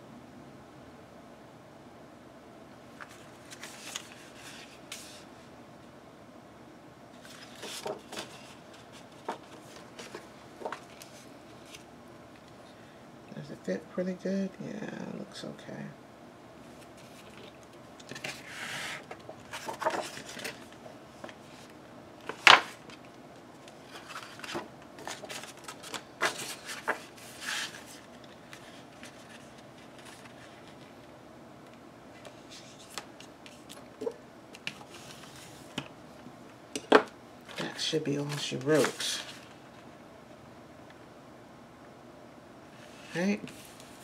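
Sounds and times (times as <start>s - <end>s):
paper rustling and sliding: 3.0s - 5.3s, 7.1s - 11.9s, 16.6s - 31.0s, 32.1s - 33.8s, 34.6s - 35.8s, 37.5s - 39.6s, 42.8s - 44.0s.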